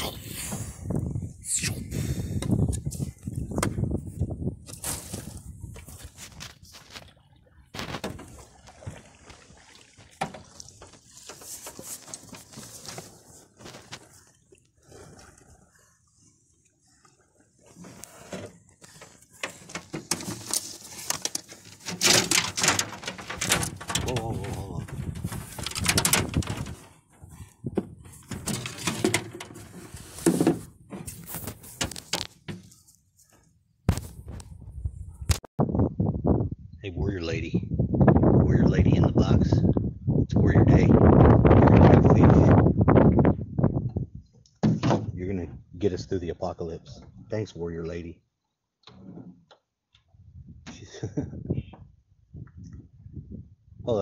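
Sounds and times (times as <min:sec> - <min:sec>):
handling noise on phone microphone: 0:00.0 - 0:08.5, 0:10.4 - 0:14.4, 0:17.6 - 0:35.5
paddle strokes in water: 0:04.8 - 0:33.5.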